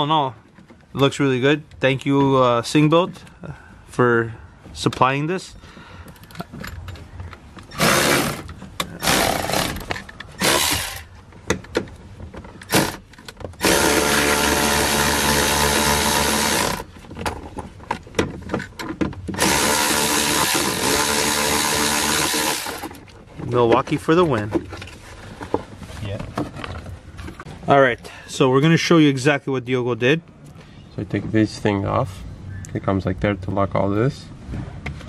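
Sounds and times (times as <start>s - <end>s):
cordless power tool driving bolt: 7.6s - 16.9s, 19.3s - 23.0s.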